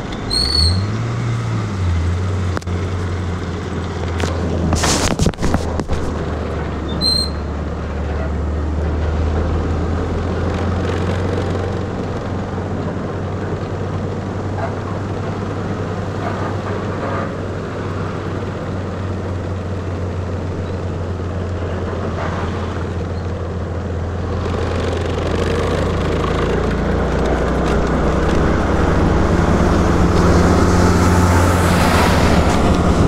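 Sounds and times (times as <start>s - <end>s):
truck engine droning: 0.0s - 33.0s
scooter engine: 10.1s - 33.0s.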